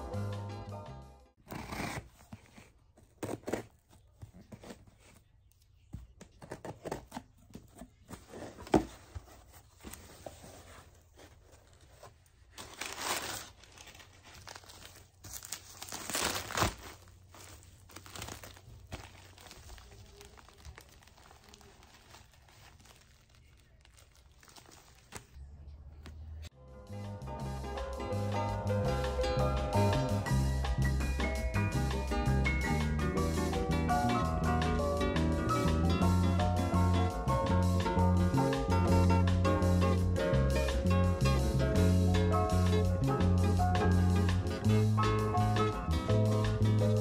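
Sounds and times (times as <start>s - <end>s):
packaging crinkling and rustling: 6.6s - 25.4s
packaging tearing: 12.5s - 25.4s.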